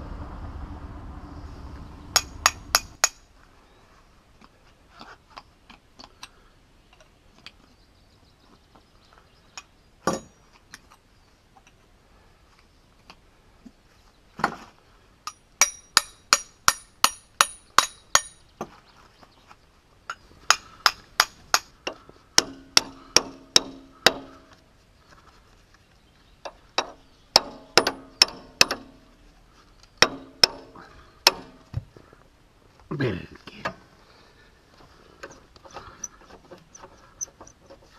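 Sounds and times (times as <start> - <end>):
hammer striking metal: 2.1 - 3.3, 15.3 - 18.4, 22.4 - 24.5, 26.8 - 29.1, 30.0 - 31.7.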